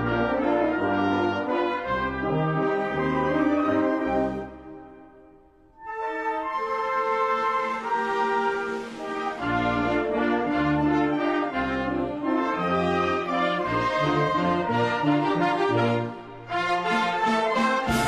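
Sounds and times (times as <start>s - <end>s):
brass band playing: 0.0s - 5.2s, 5.8s - 18.0s.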